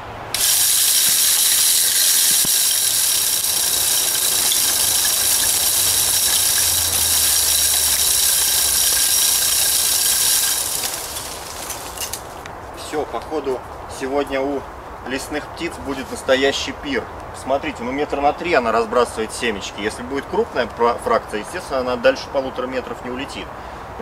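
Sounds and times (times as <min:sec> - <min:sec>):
feeder motor whining: 0:00.0 - 0:12.2.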